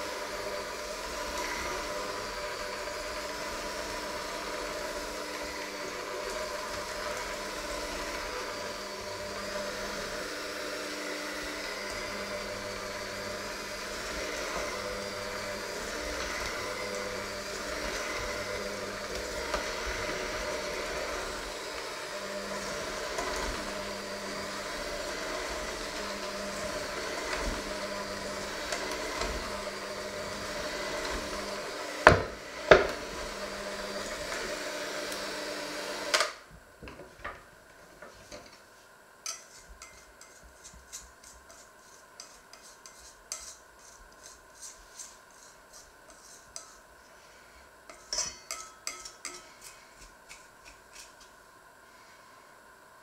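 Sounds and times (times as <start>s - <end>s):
electric hand mixer running: 0.0s - 36.5s
clicks and scrapes on metal bowl: 39.2s - 46.8s, 47.9s - 51.3s.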